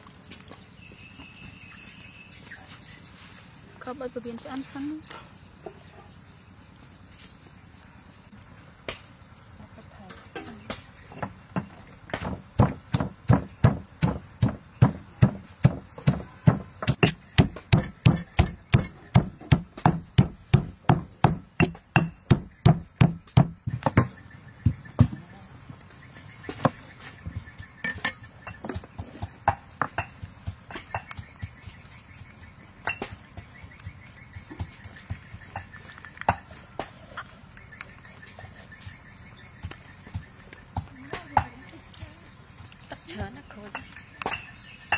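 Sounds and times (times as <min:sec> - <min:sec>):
stone pestle pounding in mortar: 0:10.7 - 0:25.2.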